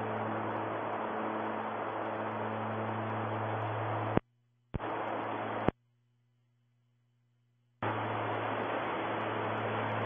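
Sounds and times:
radio static hiss: 0.0s - 5.8s, 7.8s - 10.0s.

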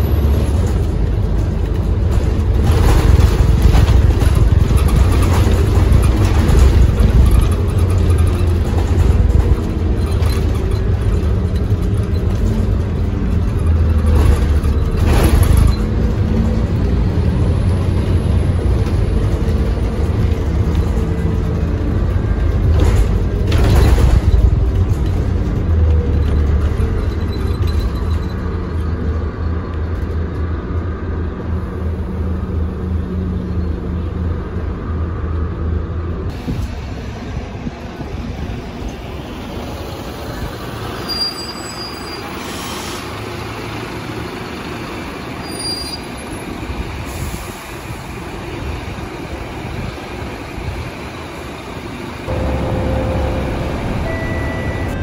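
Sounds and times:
bus engine rumble: 0.0s - 55.0s
knocks and rattles: 0.2s - 17.1s, 18.6s - 30.5s.

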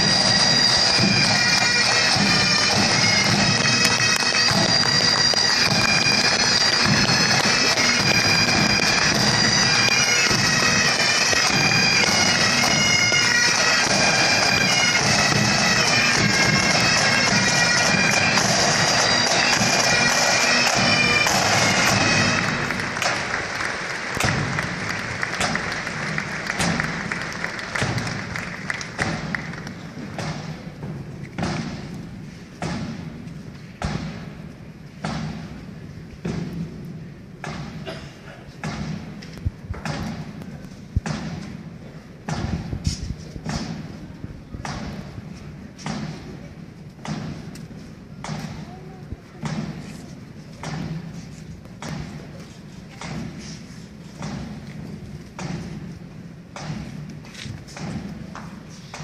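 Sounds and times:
bagpipes playing over drones: 0.0s - 28.2s
echoing thuds: 0.1s - 38.0s, 38.6s - 48.8s, 49.4s - 49.9s, 50.5s - 52.4s, 53.0s - 59.0s.

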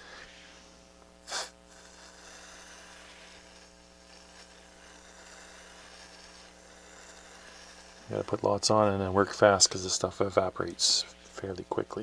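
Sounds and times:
aerosol spray hiss: 0.0s - 8.1s
faint mains hum: 0.0s - 12.0s.

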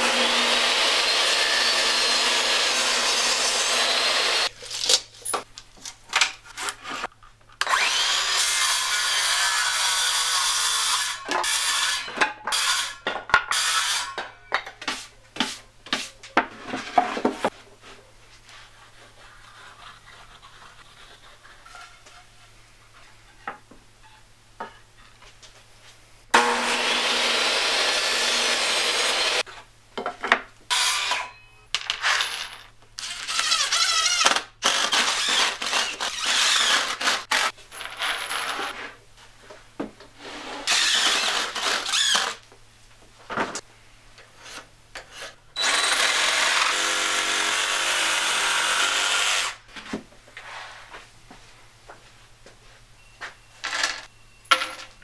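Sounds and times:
table saw running: 0.0s - 4.5s, 26.4s - 29.4s
scraping and rasping on wood: 18.4s - 23.2s.

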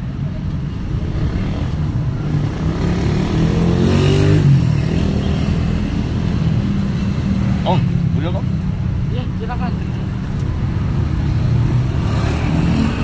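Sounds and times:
low hum of traffic: 0.0s - 13.0s
motorcycle passing: 1.0s - 8.0s, 11.3s - 13.0s.

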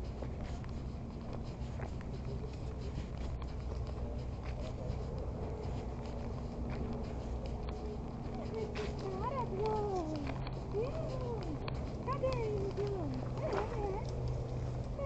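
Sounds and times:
low rumble: 0.0s - 15.0s.

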